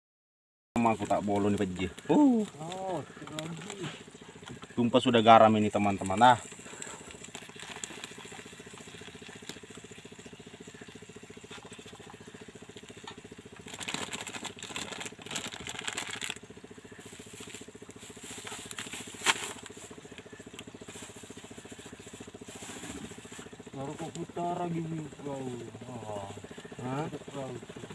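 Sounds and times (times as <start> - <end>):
small engine humming: 0.8 - 27.9
plastic bag crinkling: 0.9 - 3.8, 6.6 - 8.5, 13.6 - 16.5.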